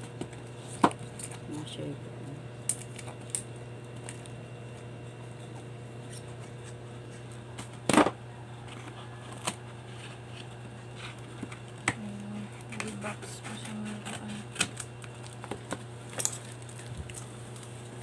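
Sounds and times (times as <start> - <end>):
steady low hum: 0.0 - 18.0
scissors cutting packing tape: 9.3 - 9.6, 10.4 - 17.7.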